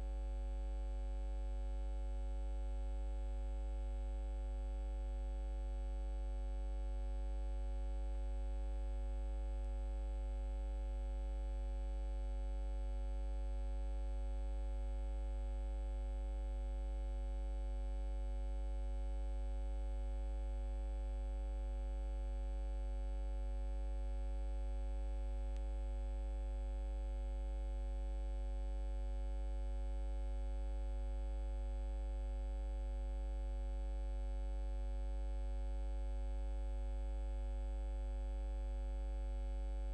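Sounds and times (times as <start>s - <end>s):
electrical mains hum: 23.2s - 29.2s.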